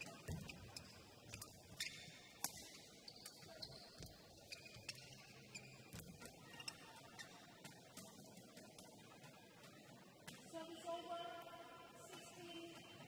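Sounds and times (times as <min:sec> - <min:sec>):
shoes squeaking on floor: 0:00.0 - 0:02.4, 0:03.0 - 0:07.9.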